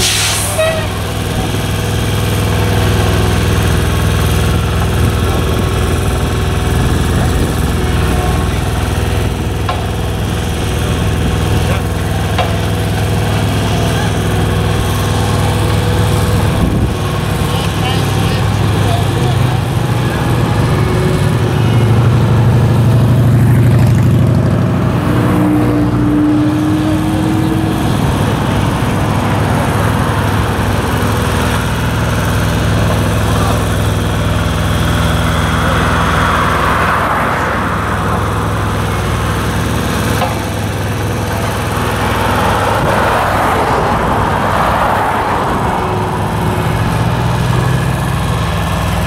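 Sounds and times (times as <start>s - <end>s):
high whine: 0.0s - 47.7s
diesel engines running: 0.0s - 49.0s.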